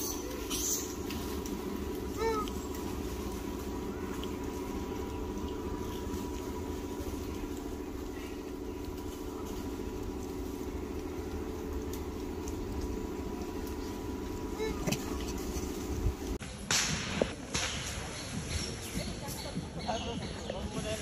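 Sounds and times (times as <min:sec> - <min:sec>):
faint constant high tone: 0:00.0 - 0:16.4
low mechanical rumble: 0:00.0 - 0:18.8.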